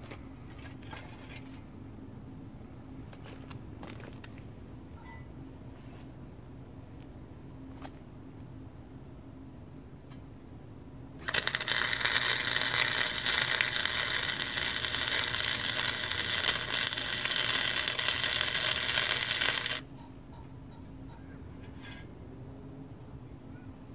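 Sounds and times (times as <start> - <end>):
welder arc crackling: 11.2 - 19.9.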